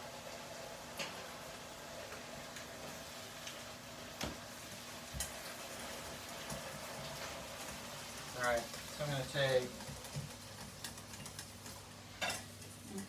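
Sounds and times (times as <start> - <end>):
utensils clinking on cookware: 8.3 - 12.7.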